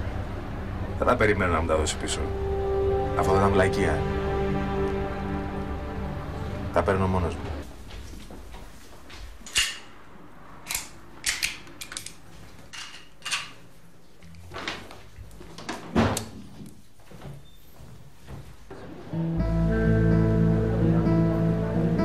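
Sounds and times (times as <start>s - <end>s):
objects clicking and knocking: 10.7s - 13.6s.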